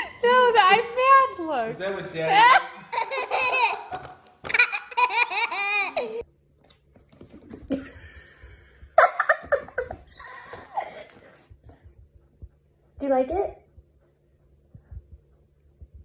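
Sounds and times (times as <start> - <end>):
babies giggling: 2.4 - 6.2.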